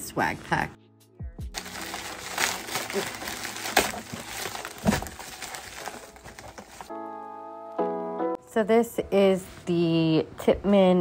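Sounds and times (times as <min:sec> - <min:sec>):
plastic bag crinkling: 0:01.6 - 0:06.9.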